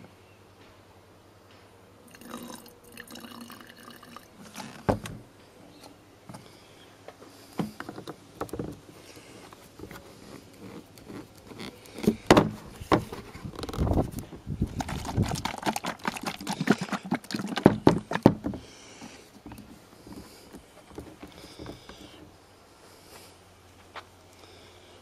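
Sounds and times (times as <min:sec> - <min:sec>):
liquid trickling into plastic bottle: 0:14.6 - 0:18.4
plastic bottles knocking and clicking: 0:14.6 - 0:19.7.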